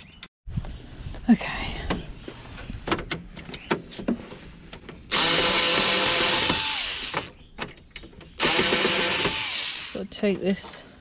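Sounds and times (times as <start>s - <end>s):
cordless screwdriver whine: 5.1s - 7.3s, 8.4s - 10.0s.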